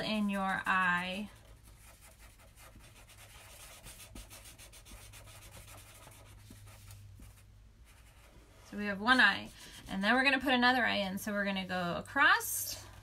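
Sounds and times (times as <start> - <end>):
marker scribbling on paper: 0.1 - 8.3.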